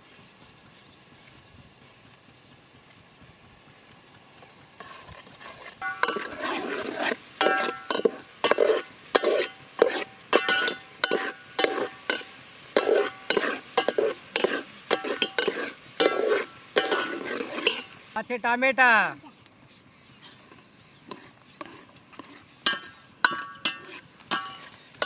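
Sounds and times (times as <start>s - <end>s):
onions frying in oil: 0.0s - 19.4s, 20.7s - 25.0s
metal ladle scraping a pot: 4.8s - 18.1s, 21.0s - 25.0s.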